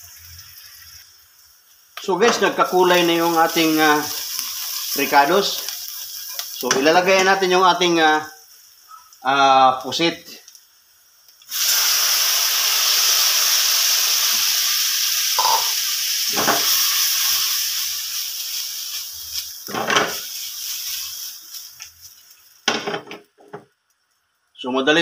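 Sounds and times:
squid sizzling in a wok: 0.0s - 24.4s
wok knocking and rustling: 16.3s - 16.8s, 19.4s - 23.8s.

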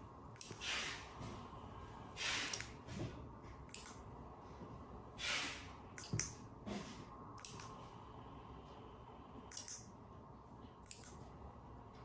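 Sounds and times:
short breathy hisses: 0.6s - 1.1s, 2.2s - 2.7s, 5.2s - 5.7s.

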